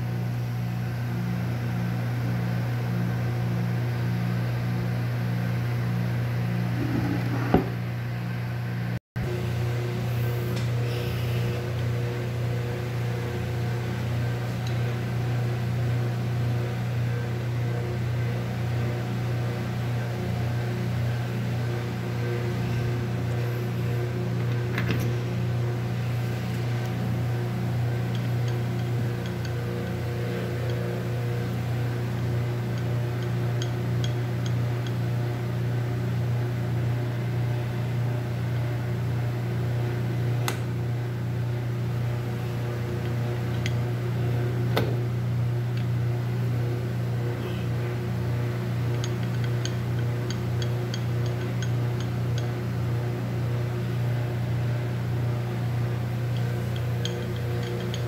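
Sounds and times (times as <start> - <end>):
electric motor humming: 6.6 - 7.9.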